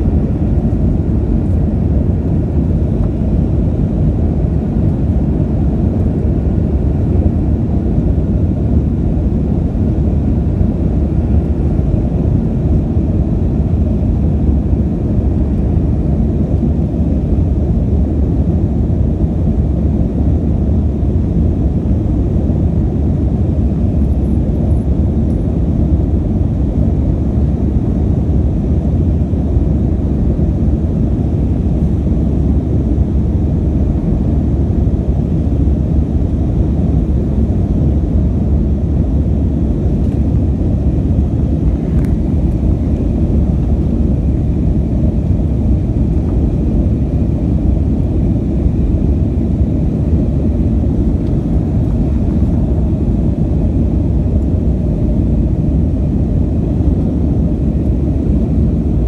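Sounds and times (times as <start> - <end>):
jet engines rumbling: 0.0 - 59.0
rushing airflow: 22.4 - 59.0.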